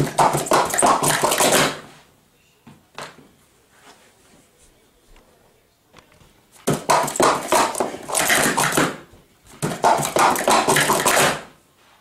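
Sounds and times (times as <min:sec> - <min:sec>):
plastic cups clattering: 0:06.7 - 0:09.0, 0:09.6 - 0:11.4.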